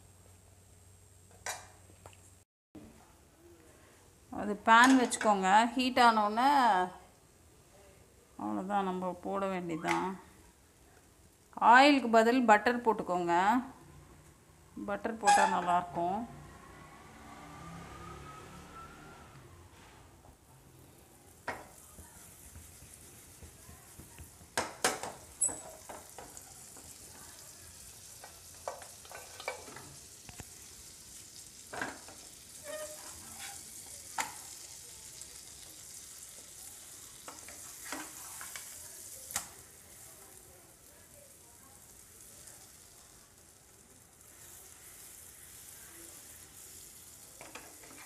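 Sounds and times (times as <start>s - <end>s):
flatbread sizzling in pan: 20.9s - 48.0s
wooden spatula scraping pan: 32.6s - 33.8s.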